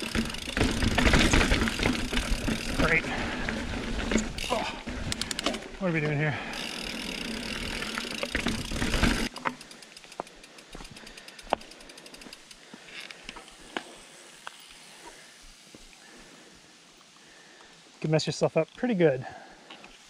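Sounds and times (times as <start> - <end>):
bike clicks and knocks: 0.0 - 6.2, 6.8 - 13.9
wind and tyre noise: 0.0 - 9.4
bike rolling on dirt: 0.0 - 16.6.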